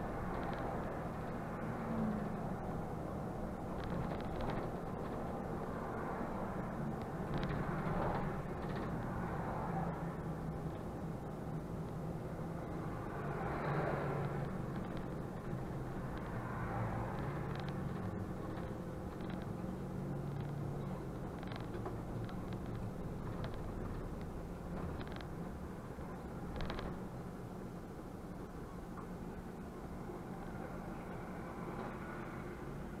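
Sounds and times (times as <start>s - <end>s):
bus engine hum: 0.0s - 33.0s
road noise: 0.0s - 33.0s
light clicks and rattles: 3.6s - 6.2s, 14.1s - 25.6s, 26.5s - 27.1s.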